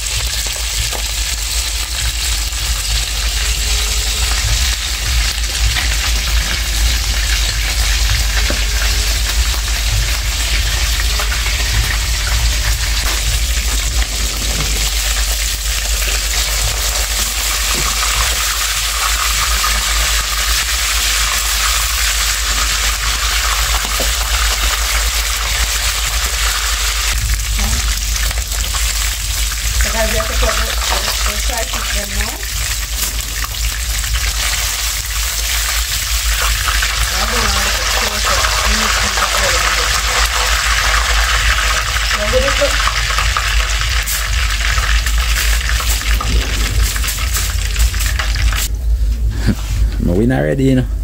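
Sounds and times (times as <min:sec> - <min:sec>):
fish sizzling in hot oil: 0:00.0 - 0:48.7
low rumble: 0:00.0 - 0:51.0.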